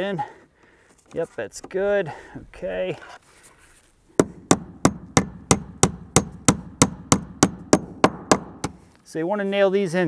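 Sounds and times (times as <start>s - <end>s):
hammer striking nail: 4.2s - 8.8s.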